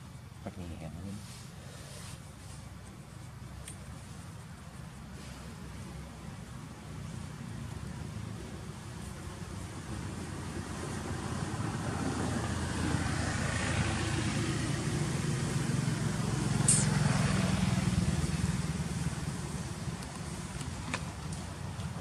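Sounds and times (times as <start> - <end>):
vehicle engine hum passing by: 0.0 - 22.0
brief hiss: 16.6 - 17.2.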